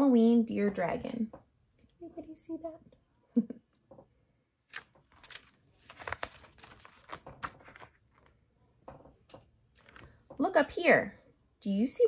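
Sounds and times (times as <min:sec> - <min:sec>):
book pages rustling: 0:04.7 - 0:08.4.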